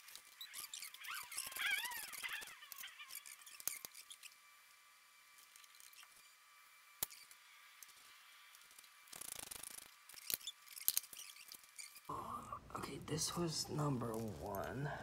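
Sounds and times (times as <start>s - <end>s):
ratchet squeak: 0.0s - 4.4s, 7.0s - 7.4s, 9.1s - 12.1s.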